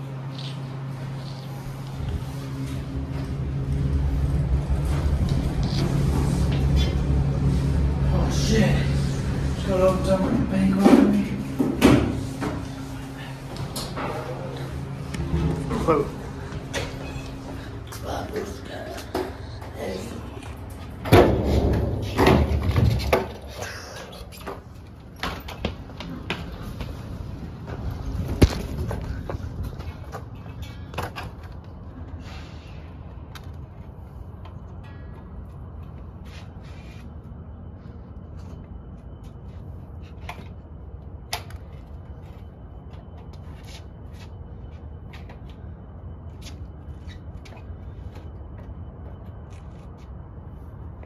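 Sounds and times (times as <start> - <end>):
steady low rumble: 0.0 - 51.0
skateboard wheels rumbling: 25.6 - 32.1.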